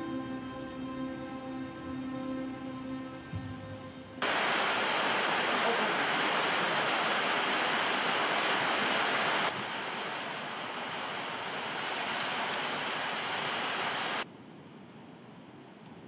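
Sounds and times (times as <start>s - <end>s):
wind rushing through trees: 3.5s - 15.5s.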